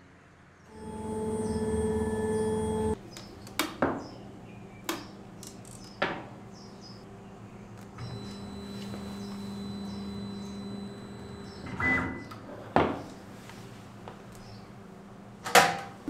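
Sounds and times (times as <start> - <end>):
small motor humming: 0.7 - 3.0, 8.0 - 11.8.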